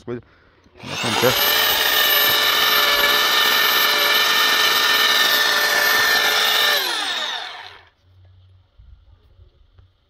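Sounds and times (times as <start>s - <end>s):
welder motor whine: 0.8s - 7.9s.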